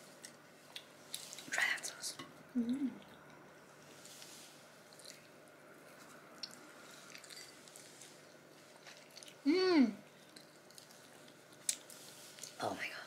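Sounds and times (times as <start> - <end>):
soft chewing: 0.0 - 12.9
person humming: 2.6 - 3.0, 9.5 - 10.0.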